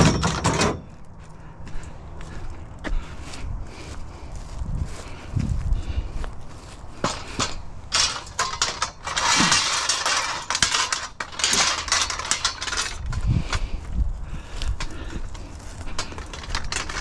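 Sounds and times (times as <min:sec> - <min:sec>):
metal struts clattering: 0:00.0 - 0:00.9, 0:07.0 - 0:13.7, 0:14.8 - 0:17.0.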